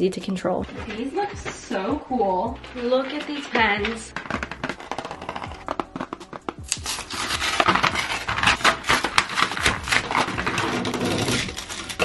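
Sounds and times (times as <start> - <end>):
cardboard box tearing: 3.0 - 12.0.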